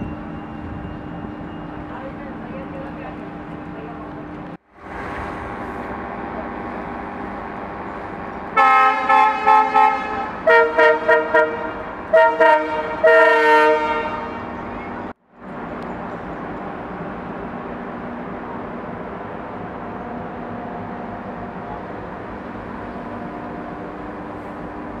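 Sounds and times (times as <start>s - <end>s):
moving passenger train: 0.0s - 25.0s
locomotive horn blasts: 8.6s - 14.6s.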